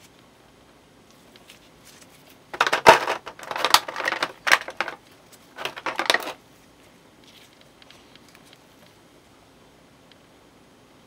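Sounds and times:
plastic blister tray crackling: 0:01.2 - 0:06.4.

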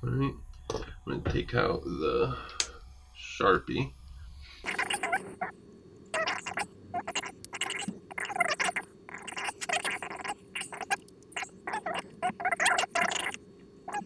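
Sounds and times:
marker squeaking on paper: 0:04.6 - 0:05.5, 0:06.2 - 0:14.0.

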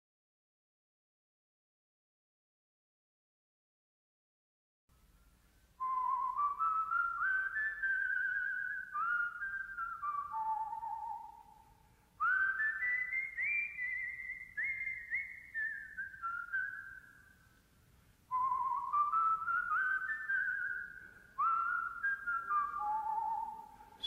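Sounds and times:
person whistling a tune: 0:05.8 - 0:17.3, 0:18.3 - 0:24.0.

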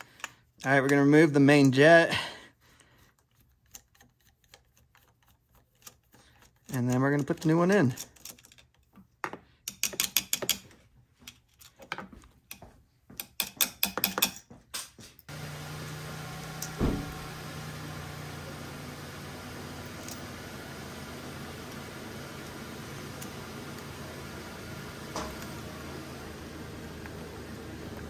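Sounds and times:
screwdriver metal clicks and scrapes: 0:00.0 - 0:01.0, 0:03.0 - 0:12.6
knock: 0:16.8 - 0:17.1.

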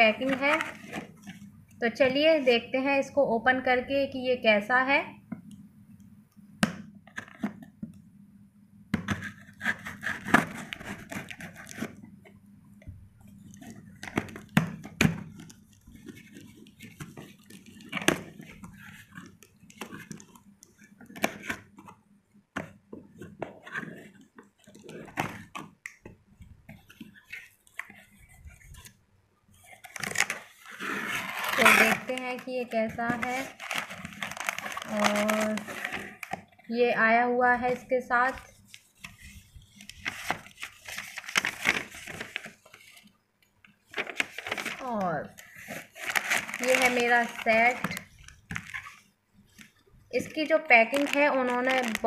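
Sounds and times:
cardboard scraping and rustling: 0:00.2 - 0:01.4, 0:09.0 - 0:12.0, 0:26.4 - 0:36.6, 0:38.2 - 0:43.1, 0:43.8 - 0:52.0
knife slitting packing tape: 0:09.1 - 0:11.9.

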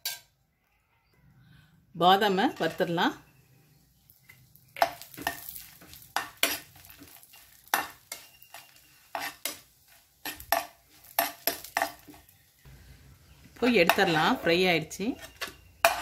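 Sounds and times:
faint frying sizzle: 0:02.2 - 0:16.0
spoon scraping frying pan: 0:02.4 - 0:03.0, 0:04.1 - 0:16.0.

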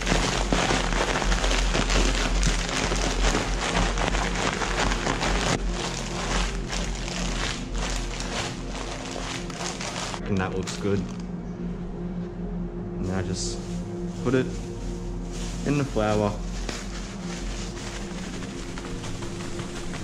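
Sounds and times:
plastic bag rustling: 0:00.0 - 0:11.2, 0:13.6 - 0:20.0
potato chips crunching in bag: 0:00.0 - 0:11.2
background music: 0:00.0 - 0:20.0.

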